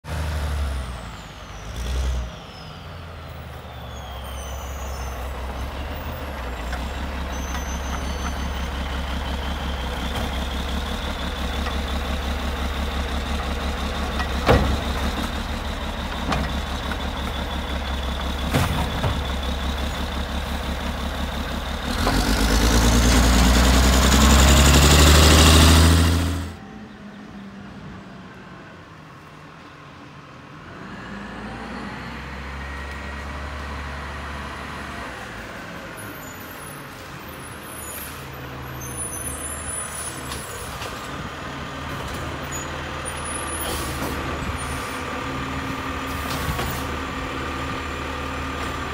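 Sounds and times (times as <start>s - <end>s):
garbage truck engine running: 4.1s - 26.6s, 39.8s - 48.9s.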